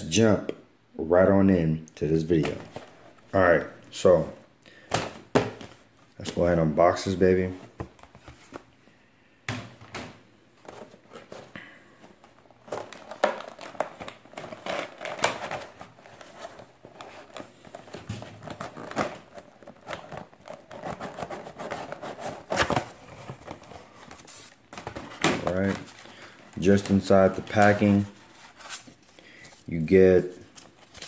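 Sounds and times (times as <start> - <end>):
packaging rustling and crinkling: 10.6 - 31.0.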